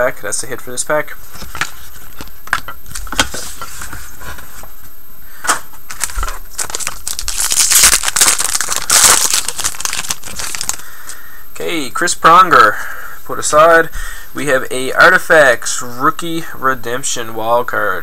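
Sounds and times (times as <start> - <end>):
card pack wrapper crinkling: 5.9 - 10.8.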